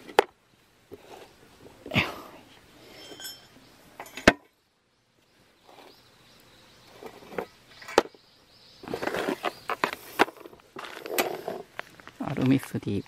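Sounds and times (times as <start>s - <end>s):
wire cable rattling and scraping: 2.8s - 4.3s, 8.8s - 12.7s.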